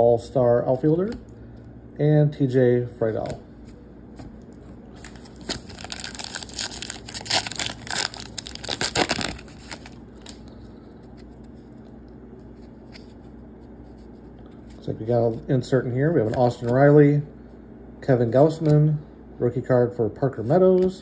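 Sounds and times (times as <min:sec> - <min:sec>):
cards being handled: 0:03.2 - 0:11.7, 0:12.4 - 0:14.8
wrapper tearing and crinkling: 0:05.0 - 0:10.5.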